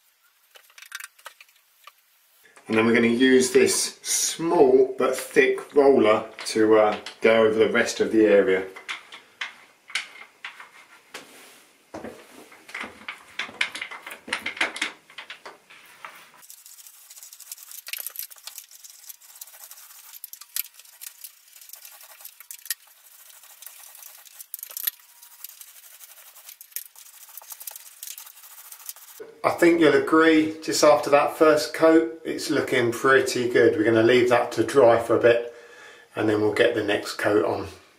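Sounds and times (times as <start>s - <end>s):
paint roller on ceiling: 15.7s - 29.2s.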